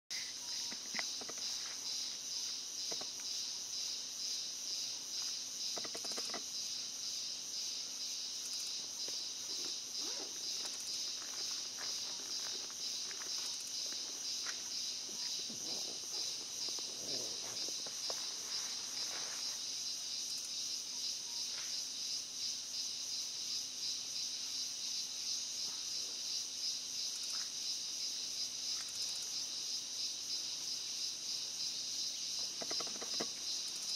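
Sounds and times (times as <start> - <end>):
insect trilling: 0.1 - 21.4, 28.7 - 33.9.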